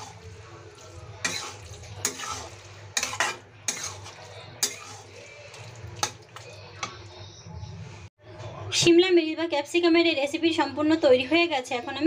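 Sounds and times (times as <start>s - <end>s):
low sizzle: 0.0s - 8.1s
metal spatula scraping a pan: 1.0s - 6.3s.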